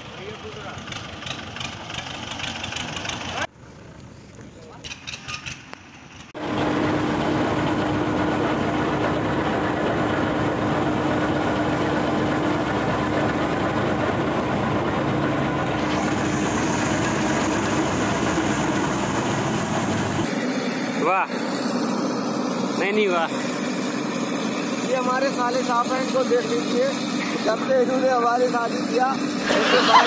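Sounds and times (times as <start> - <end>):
combine harvester running: 0.0 - 3.5, 4.8 - 30.0
tractor moving off: 0.0 - 30.0
auger pouring grain: 15.6 - 18.9.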